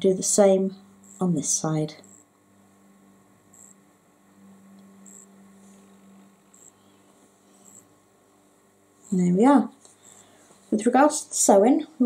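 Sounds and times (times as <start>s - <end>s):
faint mains hum: 0.0s - 12.0s.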